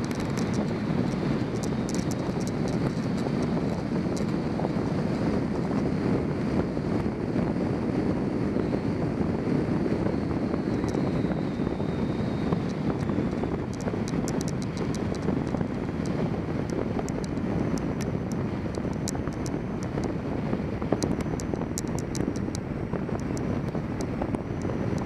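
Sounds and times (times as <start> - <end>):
faint high clicks: 0.0 - 4.3, 12.6 - 20.2
wind rushing over microphone: 0.0 - 25.0.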